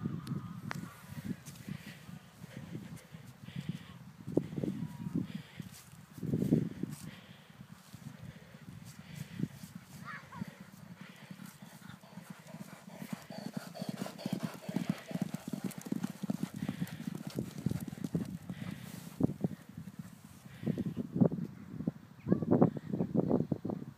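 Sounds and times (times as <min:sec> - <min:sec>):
hoofbeats on sand: 0:08.0 - 0:20.9.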